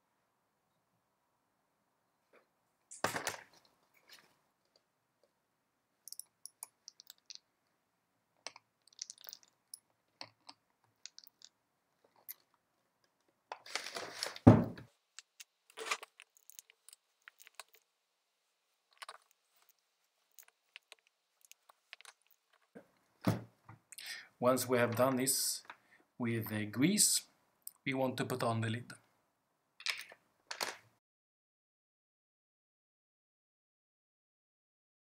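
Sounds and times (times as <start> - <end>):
hand tool clicking on housing: 6.1 - 7.2
heavy thump: 14.4 - 14.8.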